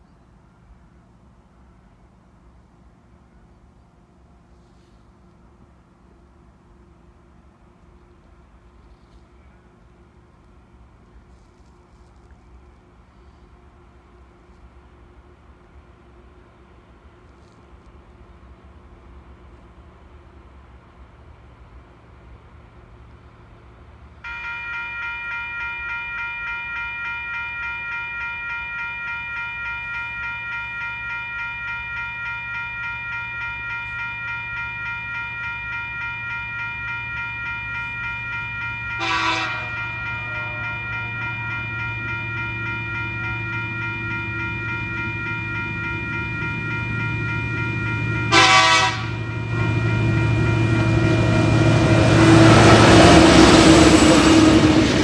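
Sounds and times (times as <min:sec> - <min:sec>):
level crossing bell ringing: 0:24.3 - 0:53.1
diesel locomotive rumble: 0:33.2 - 0:55.0
train horn blasts: 0:37.5 - 0:54.9.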